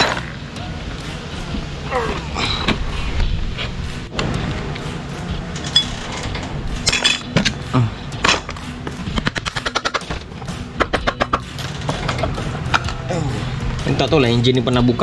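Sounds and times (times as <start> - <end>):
metal tool clinks and knocks: 5.6 - 7.6
quick run of clicks: 8.2 - 10.2.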